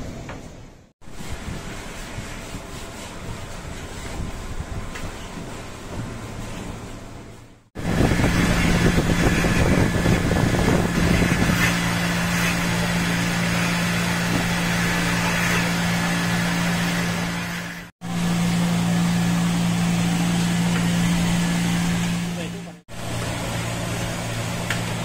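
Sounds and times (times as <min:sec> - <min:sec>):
machine hum: 0:00.0 - 0:25.0
scrubbing and splashing: 0:01.0 - 0:17.9.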